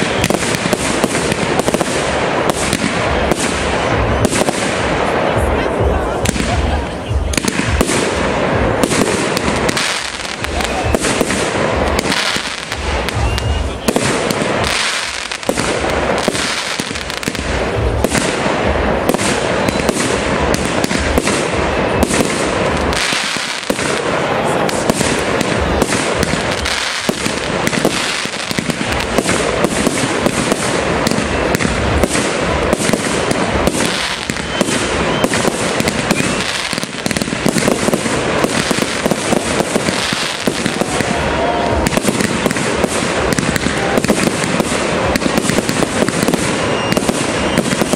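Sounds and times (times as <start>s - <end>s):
fireworks bursting: 0.0s - 47.9s.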